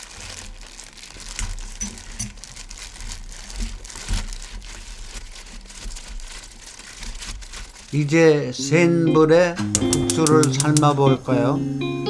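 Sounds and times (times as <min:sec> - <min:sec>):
wet squishing of greens: 0:00.0 - 0:08.5
plastic glove crinkling: 0:00.0 - 0:08.6.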